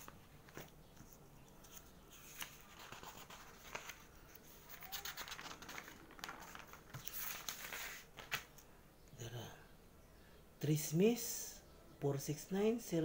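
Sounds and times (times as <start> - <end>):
newspaper pages rustling: 0.0 - 8.6.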